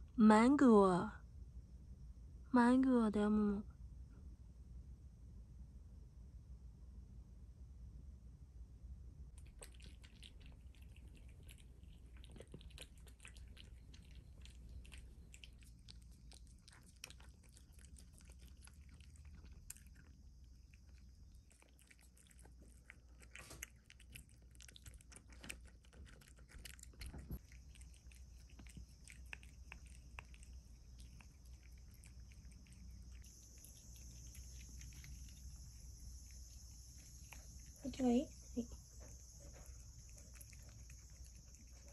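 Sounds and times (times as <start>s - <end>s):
cats chewing and licking: 9.3s - 41.9s.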